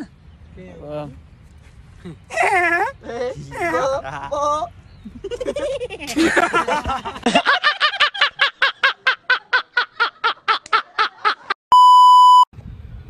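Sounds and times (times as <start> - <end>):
young men laughing: 2.0 - 11.6
man laughing rhythmically: 3.7 - 11.6
electronic bleep tone: 11.7 - 12.5.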